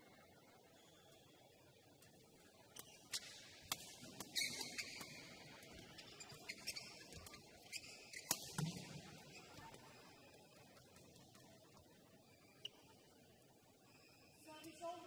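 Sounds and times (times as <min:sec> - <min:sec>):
shoes squeaking on court floor: 0:04.2 - 0:09.8.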